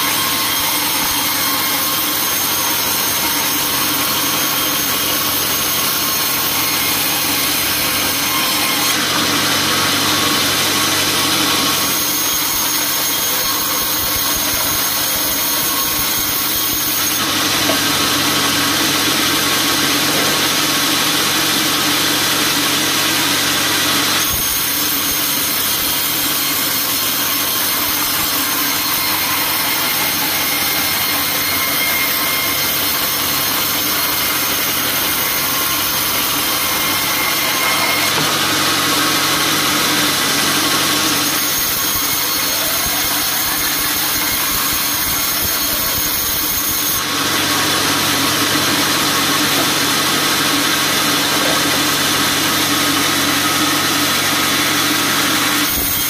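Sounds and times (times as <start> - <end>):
band saw cutting log: 0.0 - 56.0.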